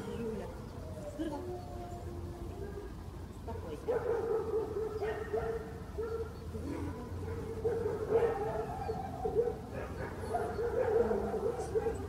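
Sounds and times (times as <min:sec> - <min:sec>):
dog whining and yipping: 0:08.2 - 0:12.0.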